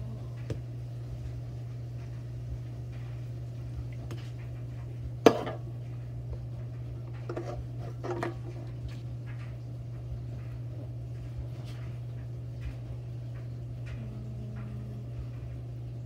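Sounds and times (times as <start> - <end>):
low hum: 0.0 - 16.0
can knocking on countertop: 5.2 - 5.6.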